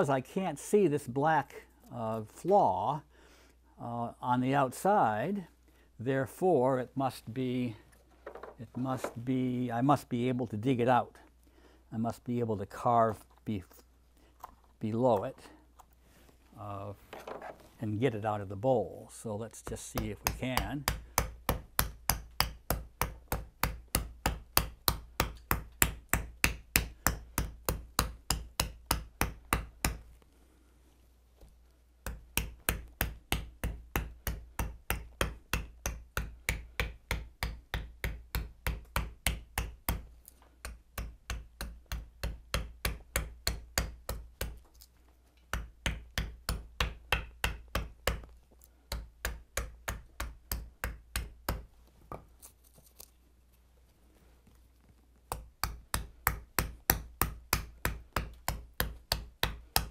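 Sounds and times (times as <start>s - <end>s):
tool striking wood: 19.7s - 30.0s.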